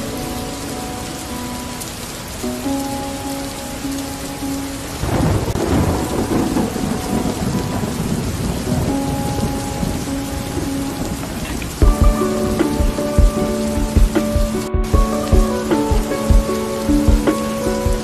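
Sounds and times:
soft background music: 0:00.0 - 0:18.0
steady rain: 0:00.0 - 0:18.0
thunder rumbling: 0:04.8 - 0:18.0.

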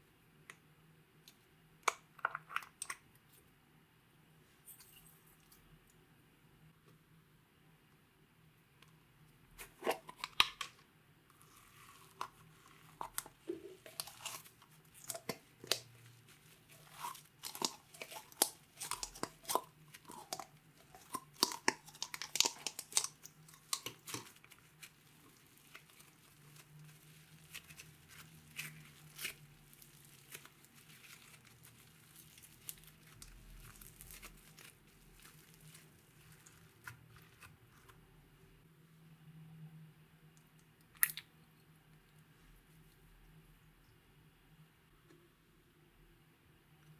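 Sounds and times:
slime squishing: 0:09.6 - 0:38.1.

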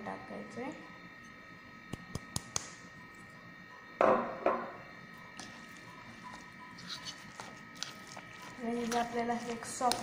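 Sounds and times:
batter squishing by hand: 0:05.1 - 0:10.0.

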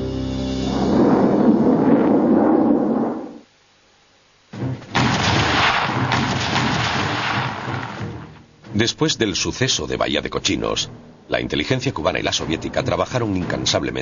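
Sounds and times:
rumbling explosion blasts: 0:04.9 - 0:08.3.

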